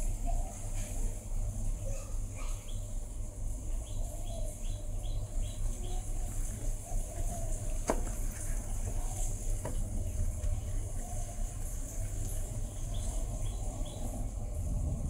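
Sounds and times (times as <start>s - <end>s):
low rumble: 13.3s - 15.0s.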